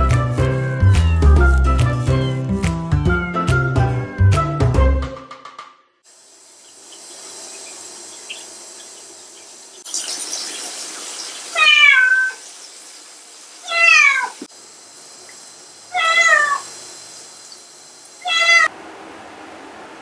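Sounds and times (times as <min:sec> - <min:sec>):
cat meowing: 0:00.8 - 0:02.5, 0:11.6 - 0:12.4, 0:13.6 - 0:14.4, 0:15.9 - 0:16.6, 0:18.2 - 0:18.7.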